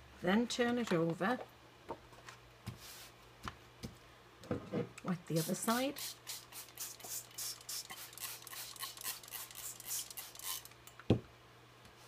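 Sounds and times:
spray bottle squirts: 0:05.4 - 0:10.7.

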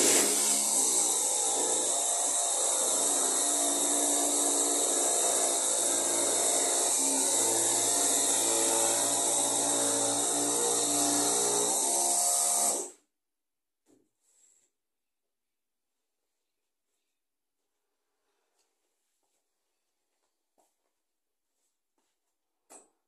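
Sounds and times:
electric jigsaw cutting wood: 0:00.0 - 0:13.0.

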